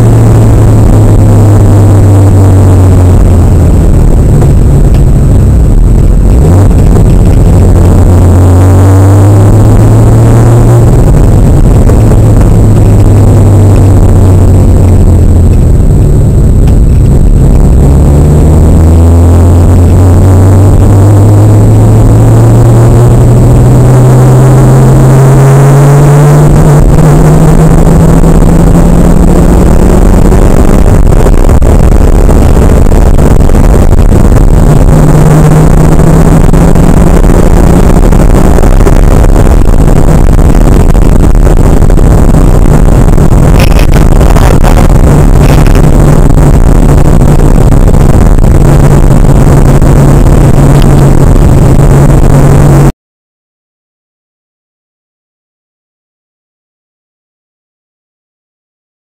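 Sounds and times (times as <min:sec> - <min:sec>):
car engine accelerating: 0:00.0 - 0:52.9
road and wind noise: 0:00.0 - 0:53.0.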